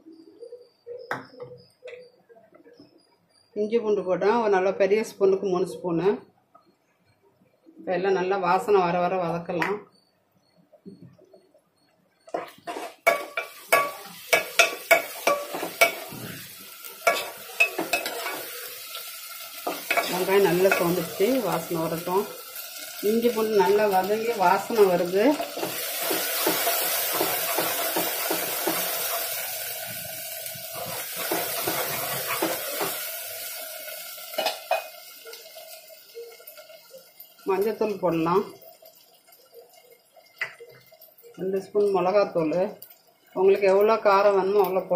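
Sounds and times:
food sizzling in oil: 11.8s - 44.9s
spatula scraping a pot: 12.3s - 18.4s.

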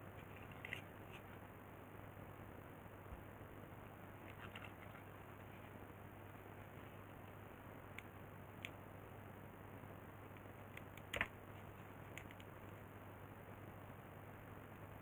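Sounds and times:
faint clicks: 7.2s - 8.8s, 12.1s - 12.8s.

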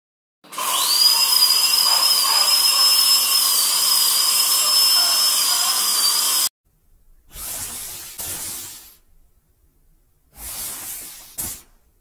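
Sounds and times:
dental drill whining: 0.5s - 6.5s.

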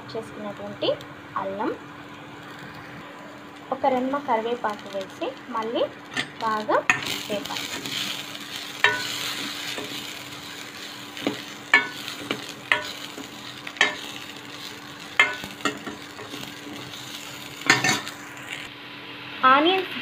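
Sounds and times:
vegetables sizzling in oil: 0.0s - 20.0s
metal spatula clinking on pan: 8.8s - 10.0s, 11.3s - 13.0s, 13.8s - 14.1s, 15.2s - 16.4s, 17.7s - 18.0s.

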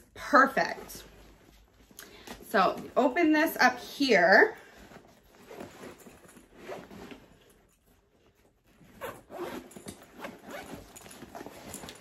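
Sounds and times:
zipper being pulled open: 8.8s - 12.0s.

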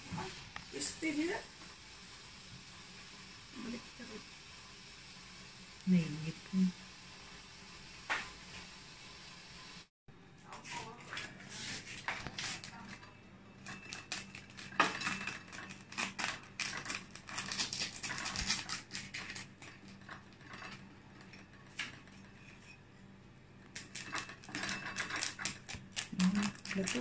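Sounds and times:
knife cutting crackling pork skin: 13.7s - 20.0s, 23.7s - 27.0s.

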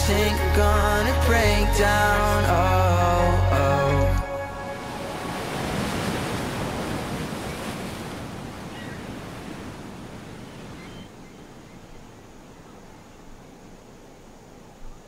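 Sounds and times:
sea waves crashing against cliffs: 4.6s - 11.6s
faint seabird calls: 8.4s - 13.6s.

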